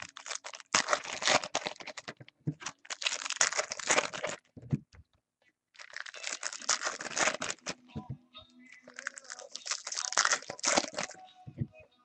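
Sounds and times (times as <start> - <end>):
plastic packaging torn and crinkled: 0.0 - 4.5, 5.8 - 7.8, 8.8 - 11.2.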